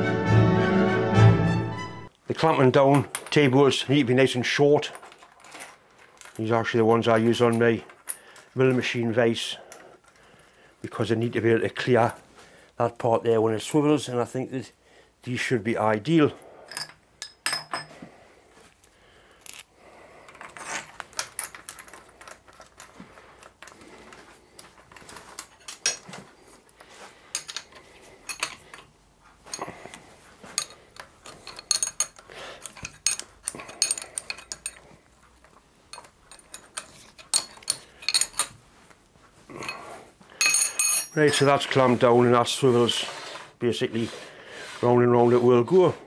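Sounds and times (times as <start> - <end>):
spanner clinking on metal nuts: 16.7 - 17.9, 20.3 - 23.8, 24.9 - 26.1, 27.3 - 28.9, 30.4 - 38.6, 39.7 - 41.8.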